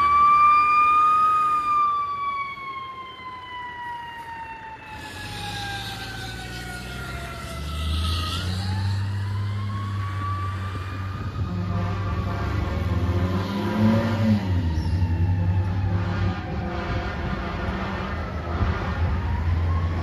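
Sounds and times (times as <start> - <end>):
fire truck siren: 0.0 - 20.0
diesel engine rumble: 4.9 - 20.0.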